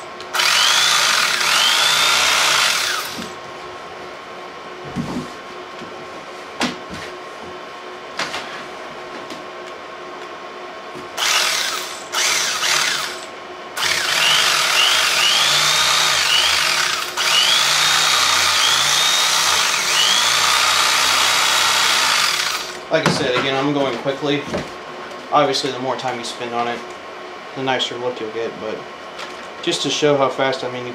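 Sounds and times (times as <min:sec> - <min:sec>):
electric carving knife buzzing: 0:00.3 - 0:03.3, 0:11.2 - 0:22.8.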